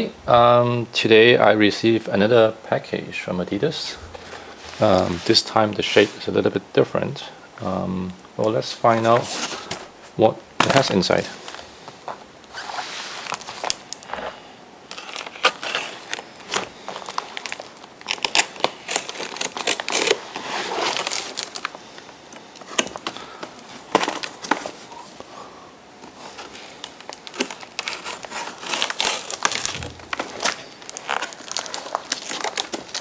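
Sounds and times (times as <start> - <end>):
packing tape crackling: 10.6 - 25.3, 26.0 - 33.0.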